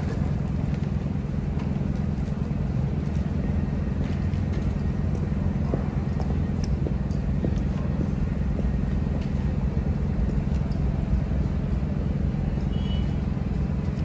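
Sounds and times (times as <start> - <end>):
faint footsteps: 0.0 - 11.9
generator humming: 0.0 - 14.0.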